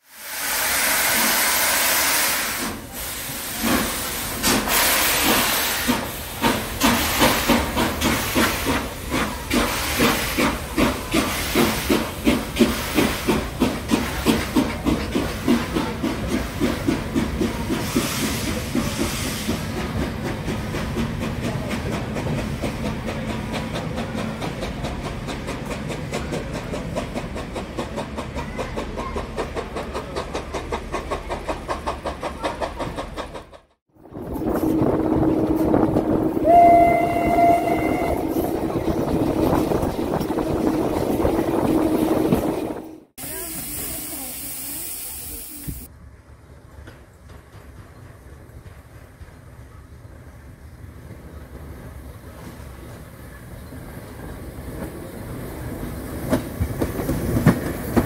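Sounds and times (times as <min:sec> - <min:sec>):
steam hissing: 0:00.0 - 0:26.2, 0:36.4 - 0:45.9.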